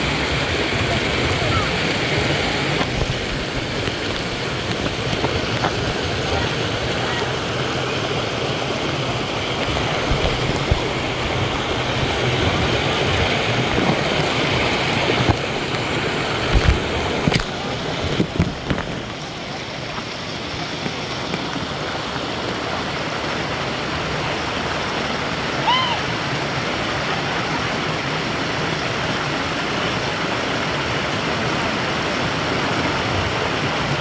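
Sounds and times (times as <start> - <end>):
rushing water of river cascade: 0.0 - 34.0.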